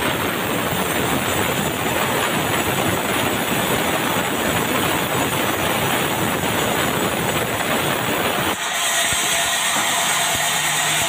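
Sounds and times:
sawmill saw cutting timber: 8.4s - 11.0s.

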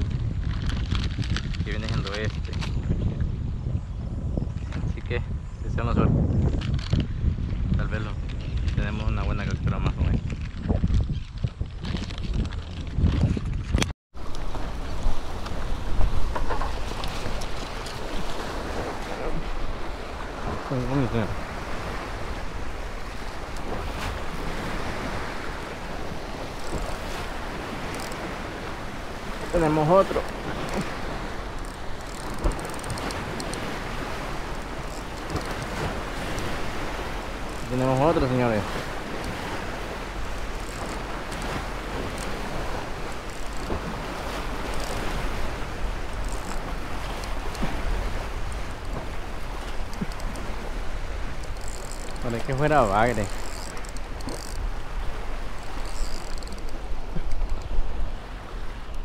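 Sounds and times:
wind rumbling on microphone: 0.0s - 59.0s
waves splashing against rocks: 14.2s - 59.0s
light high ticks: 48.4s - 50.5s, 55.6s - 57.8s.

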